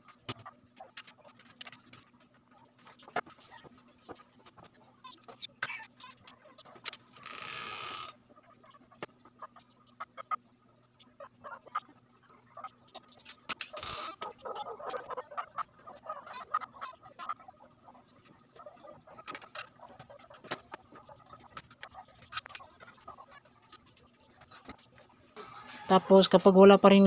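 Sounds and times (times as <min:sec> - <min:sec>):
crackly noise: 0:00.0 - 0:25.4.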